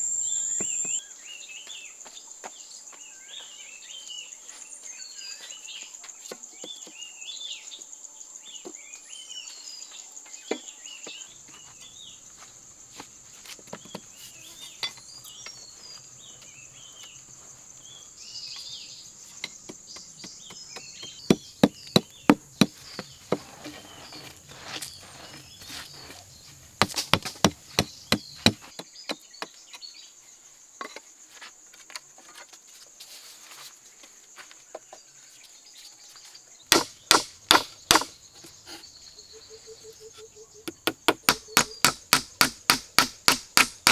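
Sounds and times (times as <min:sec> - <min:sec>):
birds chirping: 0:00.0 - 0:07.9, 0:13.7 - 0:30.4, 0:34.8 - 0:42.1
high insect drone: 0:00.0 - 0:43.9
wooden poles knocking: 0:19.4 - 0:23.9, 0:26.8 - 0:29.5, 0:40.7 - 0:43.9.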